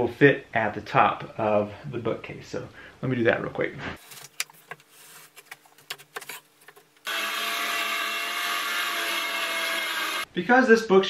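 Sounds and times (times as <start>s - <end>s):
circular saw cutting plywood: 7.0s - 10.3s.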